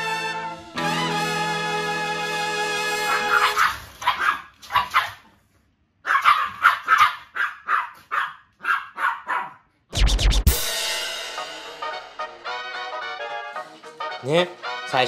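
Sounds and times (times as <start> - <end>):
small dog barking: 3.1 - 5.3, 6.0 - 9.6.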